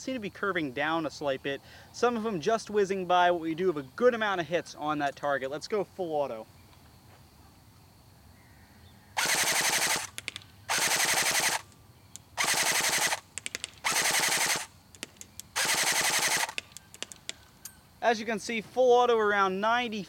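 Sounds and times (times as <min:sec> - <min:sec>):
airsoft gun firing bursts: 0:09.2 - 0:17.4.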